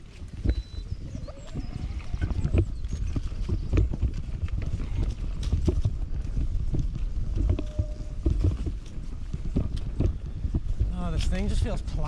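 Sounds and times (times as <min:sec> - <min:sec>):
tyres and wind rumble: 0:00.0 - 0:12.0
bike knocks and rattles: 0:02.4 - 0:11.3.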